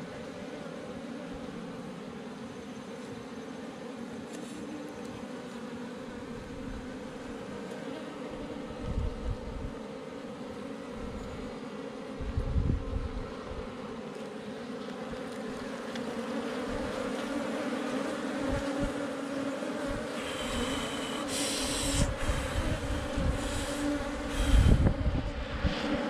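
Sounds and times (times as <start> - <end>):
honeybees buzzing: 0.0 - 26.0
scratchy hiss: 20.1 - 24.8.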